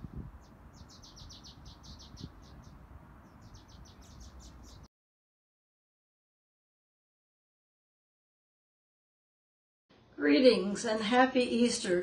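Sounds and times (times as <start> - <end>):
small bird chirping: 0.0 - 4.9.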